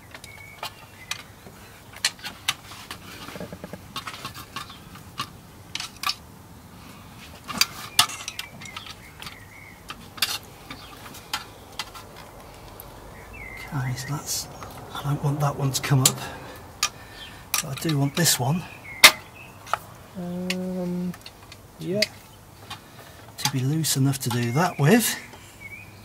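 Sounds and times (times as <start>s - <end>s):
sharp metal knocks: 19.0s - 19.3s.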